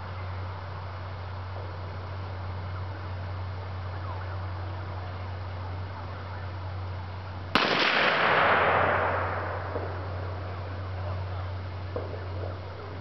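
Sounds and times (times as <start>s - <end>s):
vacuum cleaner exploding: 7.6s - 9.4s.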